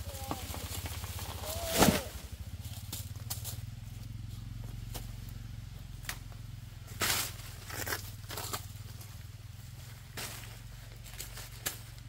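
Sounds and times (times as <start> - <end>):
low motor hum: 0.0 - 12.0
plant crashing down: 1.5 - 2.2.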